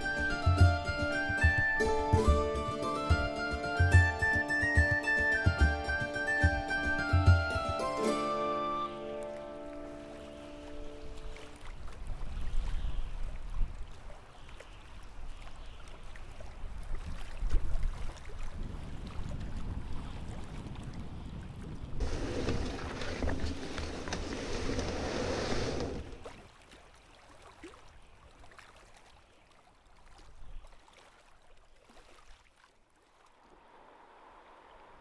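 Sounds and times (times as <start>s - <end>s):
wind rumble on microphone: 11.2s - 14.3s, 16.4s - 26.3s
brush scraping canoe hull: 22.0s - 26.3s.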